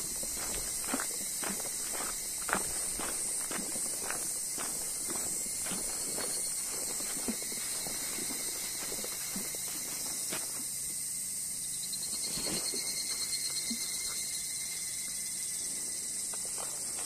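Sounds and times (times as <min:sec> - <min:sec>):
footsteps on forest path: 0:00.0 - 0:10.8, 0:16.2 - 0:17.0
insects droning: 0:00.0 - 0:17.0.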